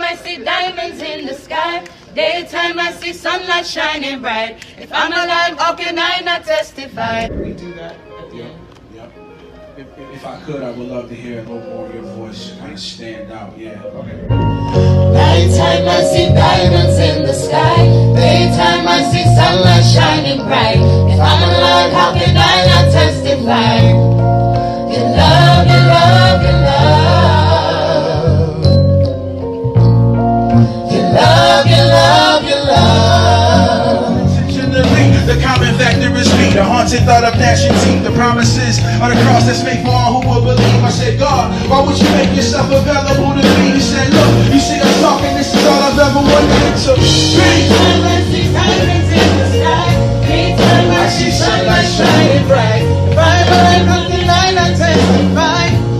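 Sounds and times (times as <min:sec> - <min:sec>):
gospel group singing in harmony: 0:00.0 - 0:07.6, 0:14.4 - 0:55.9
live band: 0:06.9 - 0:55.9
steady bass line: 0:07.0 - 0:07.8, 0:14.3 - 0:55.9.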